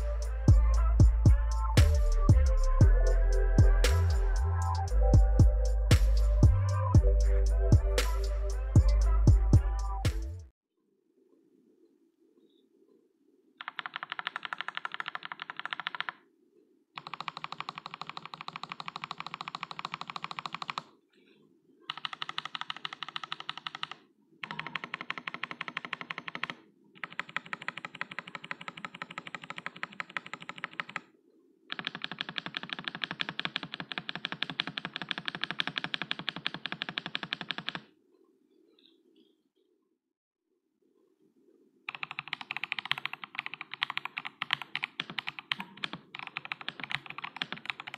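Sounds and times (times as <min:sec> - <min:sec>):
fast typing on mechanical keyboard: 0:13.6 - 0:16.2, 0:17.0 - 0:20.9, 0:21.9 - 0:31.0, 0:31.7 - 0:37.9, 0:41.9 - 0:47.9.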